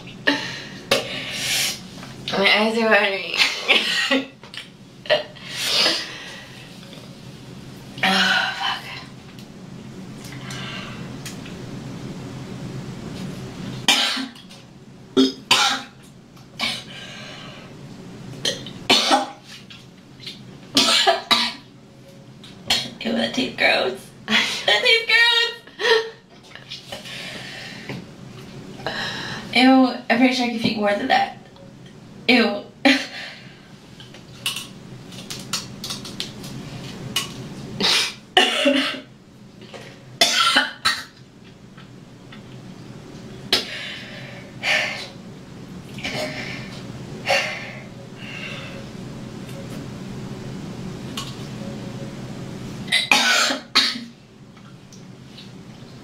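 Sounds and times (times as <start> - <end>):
low hum: 0.0 - 19.0, 31.1 - 53.2
woman coughing and retching: 3.4 - 4.4, 13.9 - 14.5, 15.2 - 16.0, 18.4 - 19.4, 20.8 - 21.7, 22.7 - 23.0, 37.8 - 39.1, 40.2 - 41.2, 52.9 - 54.1.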